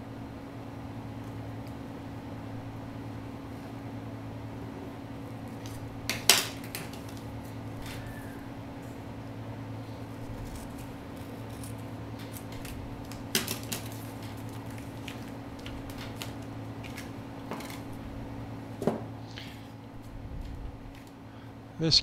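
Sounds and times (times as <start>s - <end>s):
steady low hum: 0.0s - 22.0s
paper handling: 10.0s - 18.1s
scissors snipping paper: 10.4s - 17.9s.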